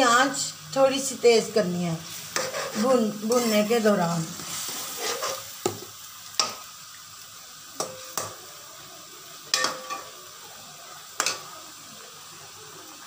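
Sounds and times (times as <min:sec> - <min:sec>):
chicken sizzling in oil: 0:00.0 - 0:13.0
metal spoon clinking against pan: 0:07.8 - 0:08.4, 0:09.5 - 0:10.1, 0:11.2 - 0:11.5.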